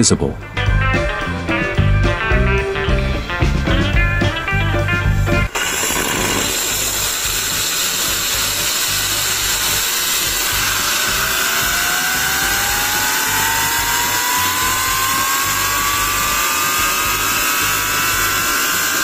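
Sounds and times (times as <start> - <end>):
background music: 0.0 - 19.0
turbine whine rising in pitch: 1.2 - 19.0
loud steam hiss: 4.8 - 19.0.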